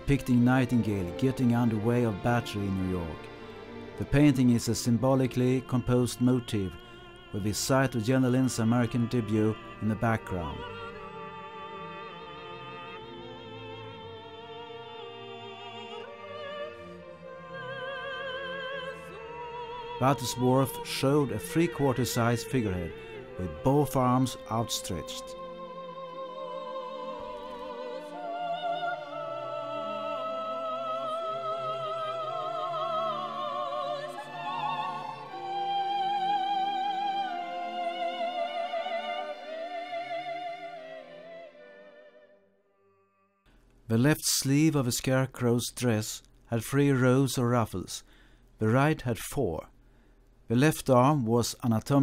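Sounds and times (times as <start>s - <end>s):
orchestral accompaniment: 0.0s - 40.2s
operatic voice singing: 0.0s - 41.8s.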